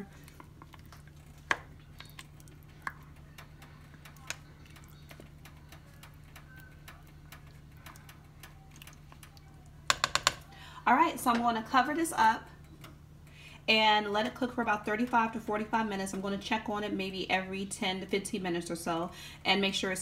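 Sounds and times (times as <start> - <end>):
steady low hum: 0.0 - 20.0
spoon knocking on pot: 9.9 - 10.5.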